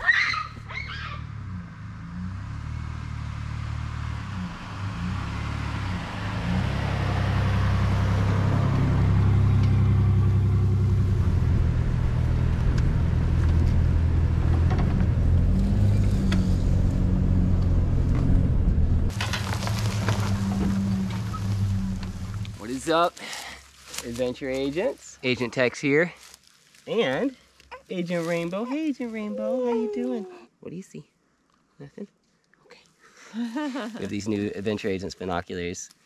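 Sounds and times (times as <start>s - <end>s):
truck engine humming: 0.0s - 23.8s.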